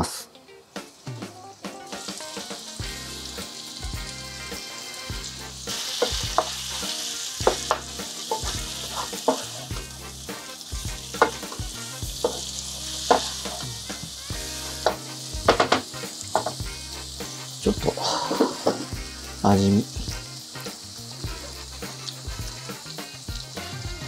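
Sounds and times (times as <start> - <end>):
chicken sizzling in hot oil: 0.7 - 24.0
knocks against pot: 14.9 - 16.6.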